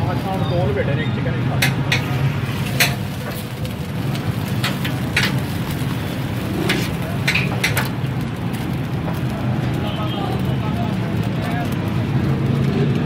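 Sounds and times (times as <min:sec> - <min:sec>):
food sizzling on a griddle: 0:00.0 - 0:13.0
spatula clinking on griddle: 0:01.6 - 0:05.9, 0:06.6 - 0:08.0.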